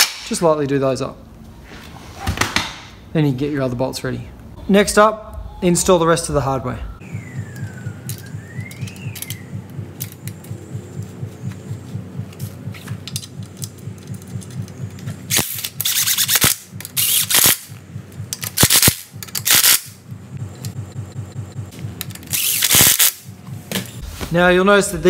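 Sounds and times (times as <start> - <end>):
bolts and washers clicking: 7.5 - 10.6.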